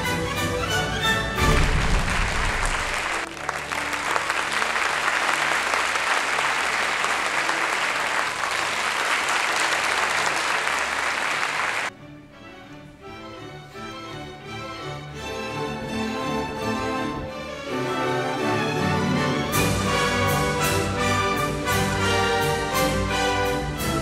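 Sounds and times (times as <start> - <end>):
audience applause: 1.4 - 11.9, 19.8 - 23.1
quiet music: 11.9 - 24.0.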